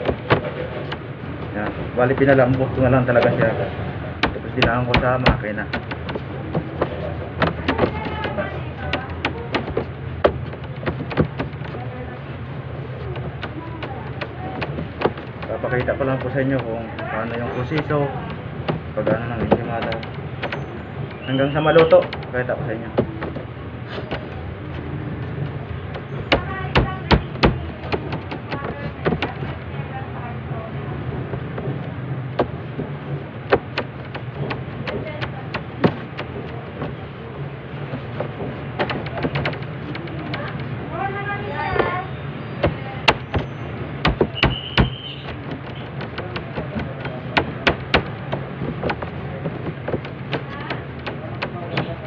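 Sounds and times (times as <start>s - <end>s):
dough knocks and taps on metal: 4.2s - 11.8s, 13.0s - 24.4s, 25.4s - 29.6s, 31.3s - 37.0s, 42.6s - 52.0s
hands slapping dough on steel: 4.2s - 11.9s, 42.6s - 52.0s
light taps: 37.8s - 40.8s, 42.6s - 52.0s.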